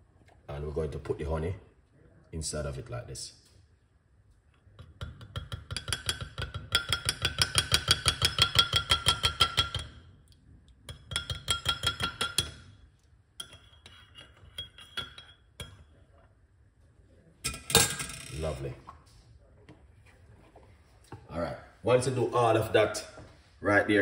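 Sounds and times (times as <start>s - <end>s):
teaspoon clinking in glass mug: 13.4s - 15.9s.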